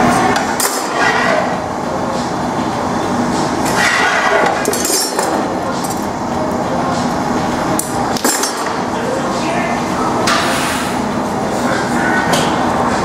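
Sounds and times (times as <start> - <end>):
metal tools clinking: 4.6 - 6.1.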